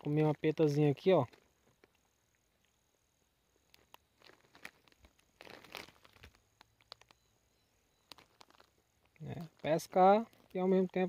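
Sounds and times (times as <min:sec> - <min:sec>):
plastic snack bag crinkling: 0:03.6 - 0:07.2, 0:08.0 - 0:11.0.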